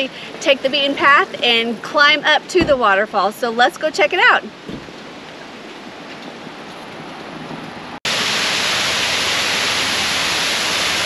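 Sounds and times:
waterfall rushing: 8.1s - 11.0s.

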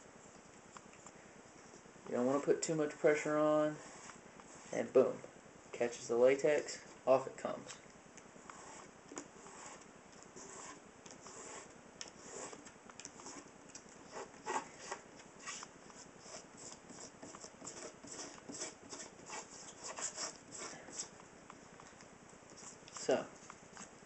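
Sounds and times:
sandpaper scratching on helmet: 2.2s - 5.0s, 8.4s - 21.2s.

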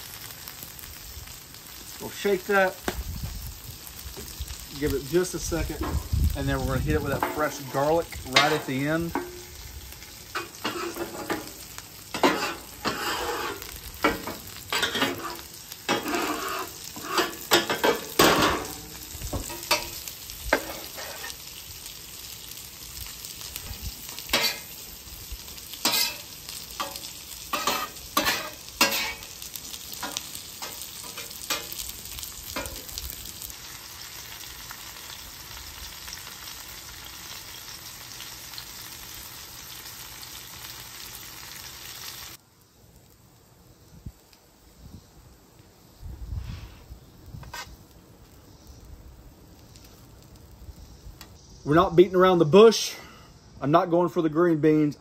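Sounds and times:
food sizzling in oil: 0.0s - 52.8s
metal spatula scraping griddle: 5.1s - 9.6s, 10.3s - 21.4s, 24.2s - 24.8s, 25.8s - 31.9s, 47.4s - 47.8s.

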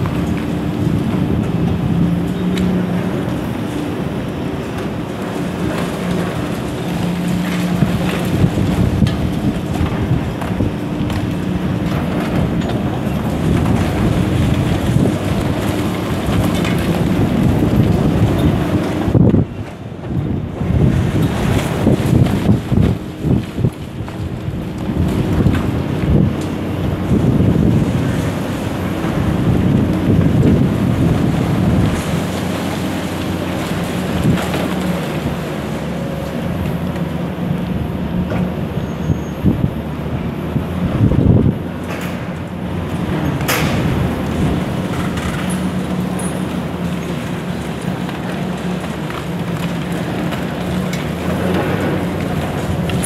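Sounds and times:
excavators running: 0.0s - 53.0s
wind buffeting microphone: 0.0s - 53.0s
concrete cracking and falling: 4.6s - 19.4s, 20.8s - 37.0s, 42.9s - 53.0s.

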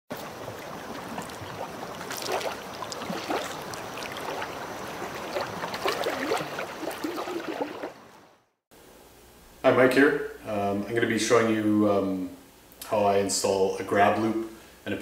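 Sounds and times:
water drips and gurgles: 0.1s - 8.4s
water lapping against a canoe: 0.1s - 8.4s.

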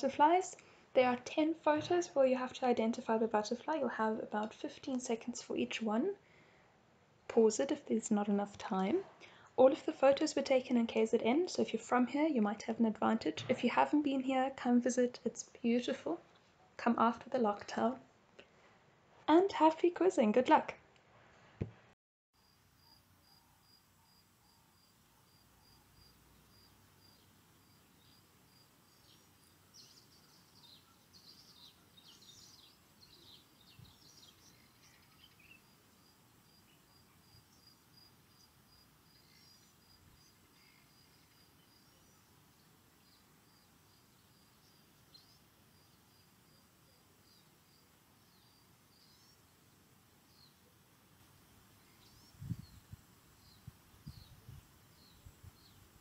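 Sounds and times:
birds calling: 28.9s - 35.8s.

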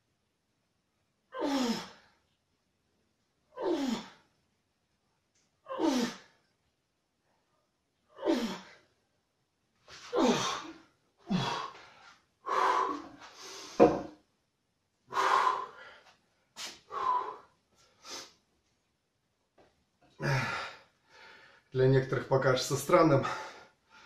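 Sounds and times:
man breathing hard and gasping: 10.0s - 14.1s, 15.1s - 18.4s, 20.2s - 21.7s
short thud: 13.8s - 14.1s.

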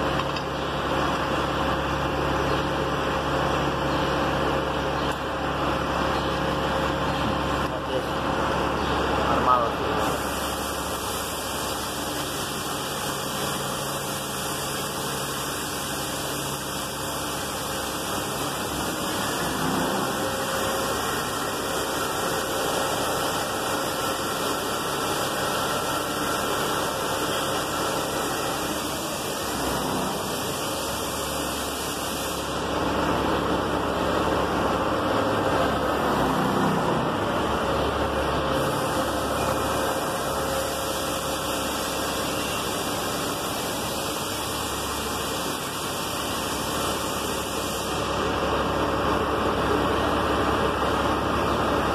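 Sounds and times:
hiss of noise: 10.0s - 33.1s, 38.5s - 48.8s.

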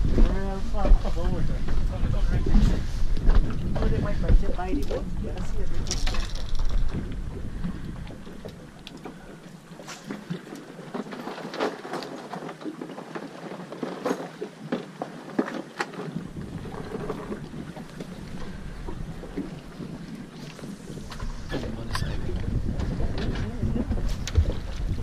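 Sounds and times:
wind on microphone: 0.0s - 9.5s, 16.1s - 25.0s
water around boat hull: 0.0s - 25.0s.

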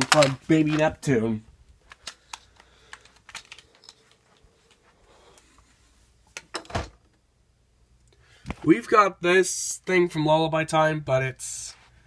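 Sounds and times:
plastic objects clicking: 0.0s - 0.9s, 1.8s - 4.0s.

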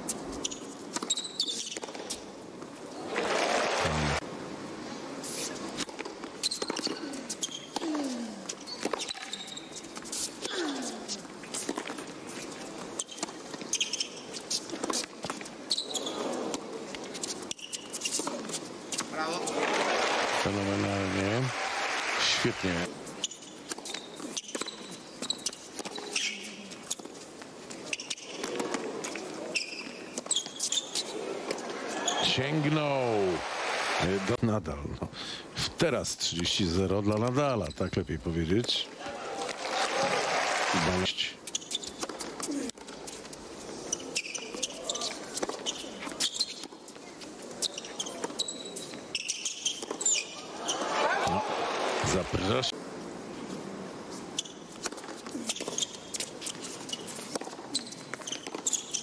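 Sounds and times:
shoe squeaks: 0.3s - 2.2s, 6.4s - 7.9s, 8.5s - 15.1s, 15.7s - 16.5s, 17.1s - 19.1s, 23.2s - 27.1s, 27.8s - 28.6s, 29.5s - 31.2s, 31.8s - 32.5s, 37.6s - 38.2s, 41.4s - 46.9s, 47.5s - 51.0s, 54.3s - 54.7s, 55.3s - 59.0s
hushed crowd: 19.1s - 22.7s, 31.0s - 34.4s, 38.9s - 41.3s, 50.3s - 52.8s
crowd chatter and calls: 31.0s - 34.2s, 38.9s - 41.0s.

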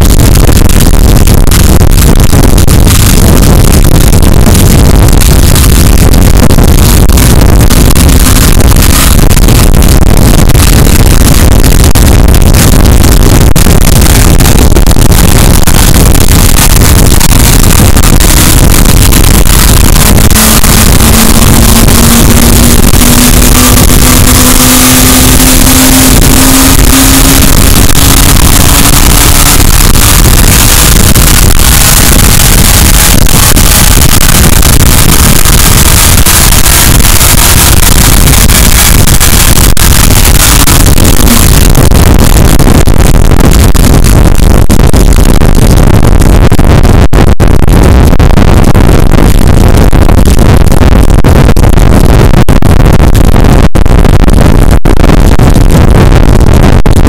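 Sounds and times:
engine revving on dyno: 20.4s - 27.8s.

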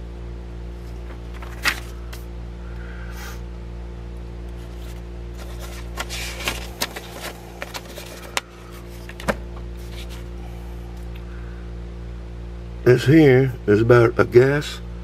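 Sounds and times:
low electrical hum: 0.0s - 15.0s
paper pages rustling: 0.8s - 2.2s, 4.5s - 10.3s.

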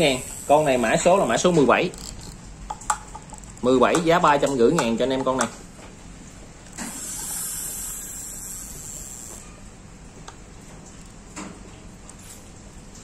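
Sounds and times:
steady high hiss: 0.0s - 1.9s, 6.8s - 9.9s.

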